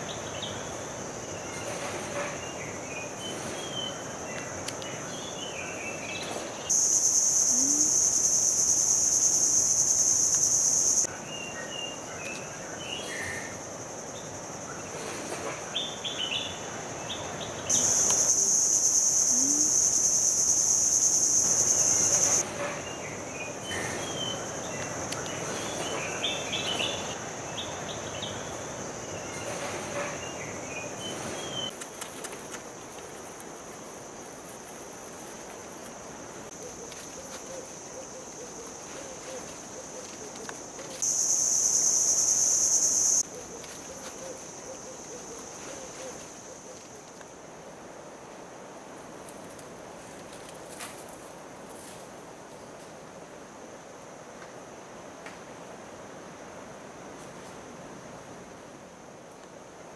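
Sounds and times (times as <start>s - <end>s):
high-pitched insect buzz: 6.7s - 11.1s, 17.7s - 27.4s, 35.5s - 46.9s.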